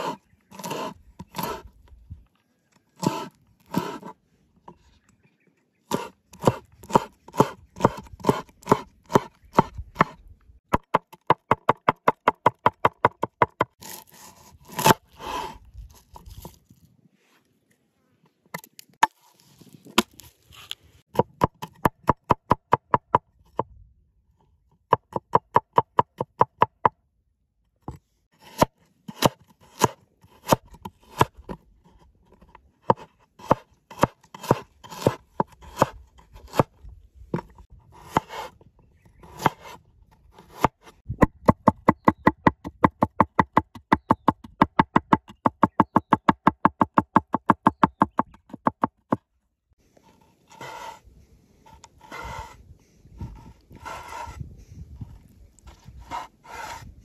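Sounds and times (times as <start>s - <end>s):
cleaver chopping on wooden board: 5.9s - 14.0s, 32.9s - 36.7s.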